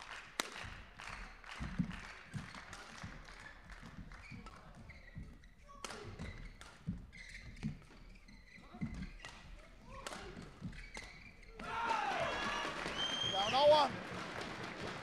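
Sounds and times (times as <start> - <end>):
shoes squeaking on court floor: 0.7 - 13.9.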